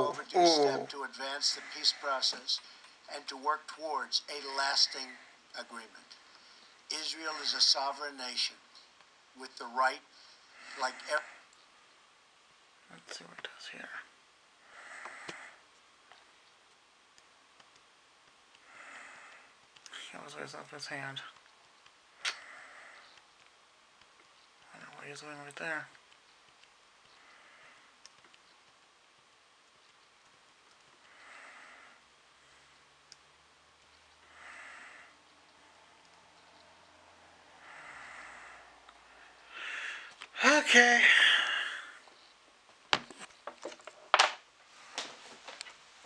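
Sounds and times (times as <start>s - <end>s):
faint clicks: 15.0s - 18.7s, 23.1s - 31.2s
soft breath: 31.0s - 32.8s, 34.2s - 35.7s, 36.4s - 40.2s.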